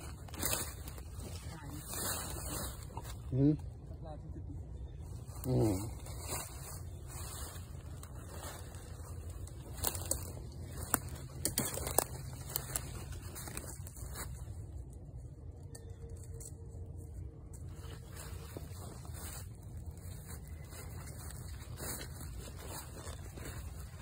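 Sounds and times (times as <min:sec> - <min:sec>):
footsteps crunching dry leaves: 0:00.0 - 0:03.7, 0:04.9 - 0:15.4, 0:17.4 - 0:24.0
dry twigs snapping: 0:09.3 - 0:14.4.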